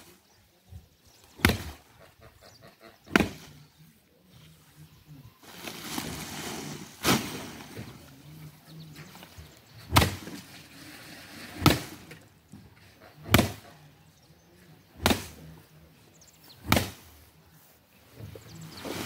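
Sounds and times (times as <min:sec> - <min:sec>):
stick thwacking sack of maize: 0:01.4 - 0:01.8, 0:09.9 - 0:10.3, 0:11.6 - 0:12.0, 0:15.0 - 0:15.4, 0:16.6 - 0:17.0.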